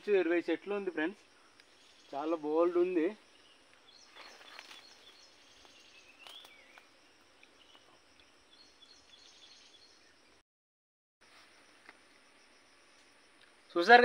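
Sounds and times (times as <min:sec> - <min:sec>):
birds chirping: 0:00.0 - 0:10.4.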